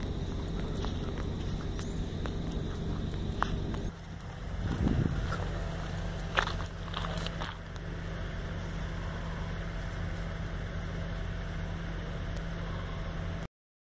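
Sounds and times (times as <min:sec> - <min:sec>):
wind blowing across microphone: 0:04.5 - 0:05.6.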